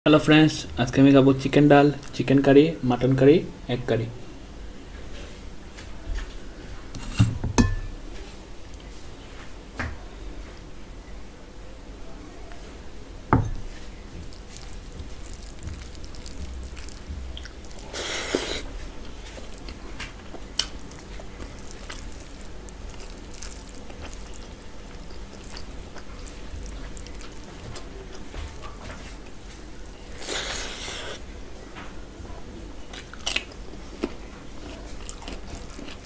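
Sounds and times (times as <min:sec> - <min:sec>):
bowl thump on wooden table: 0:13.3 - 0:13.6
fingers squishing food on plate: 0:14.2 - 0:18.0, 0:19.0 - 0:29.9.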